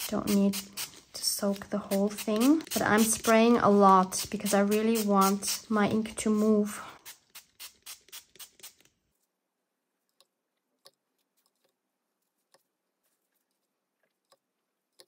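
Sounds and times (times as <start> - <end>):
spray bottle spritzing water: 0.0 - 8.9.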